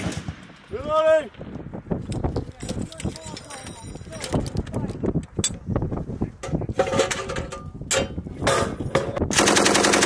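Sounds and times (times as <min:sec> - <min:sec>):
heavy machine gun burst: 0:09.3 - 0:10.0.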